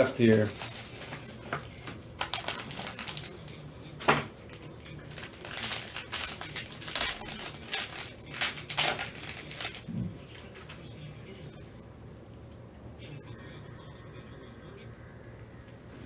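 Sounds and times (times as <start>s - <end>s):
plastic card sleeve crinkling: 2.2s - 3.6s, 5.0s - 10.7s.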